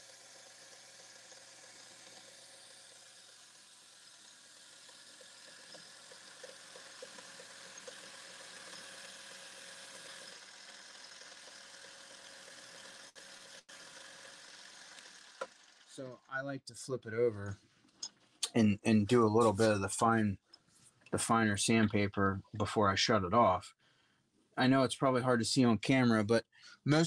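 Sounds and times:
lathe motor whine: 0:00.0 - 0:16.0.

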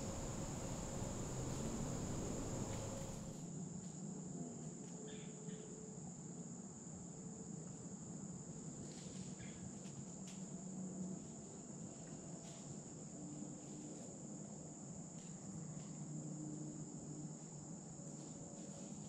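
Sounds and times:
crickets chirping: 0:00.0 - 0:03.4
faint ticks and rustles: 0:00.0 - 0:04.0.

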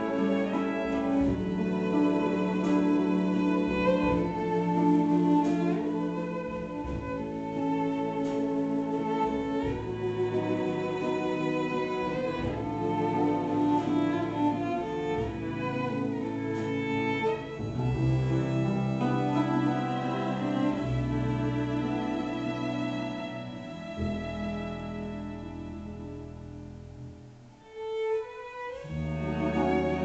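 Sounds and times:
low bass notes: 0:00.0 - 0:27.6
string ensemble playing: 0:00.0 - 0:30.0.

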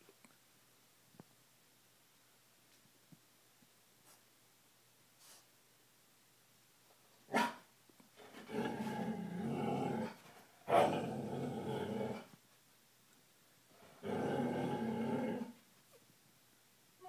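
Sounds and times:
dog barking: 0:07.3 - 0:07.6
dog growling: 0:08.2 - 0:12.3, 0:13.9 - 0:15.6.

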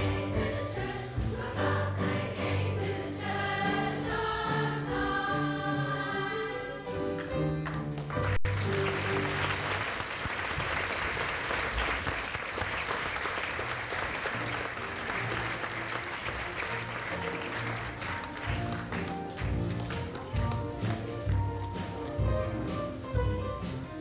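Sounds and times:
audience applauding: 0:07.6 - 0:22.2
instrumental music: 0:14.4 - 0:24.0.

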